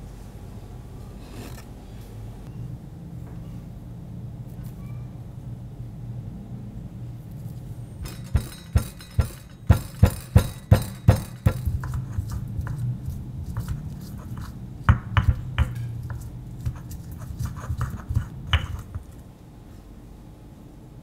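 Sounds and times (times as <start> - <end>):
stone pestle grinding in mortar: 8.0 - 19.2
stone knocking on stone: 14.9 - 16.2, 17.8 - 19.0.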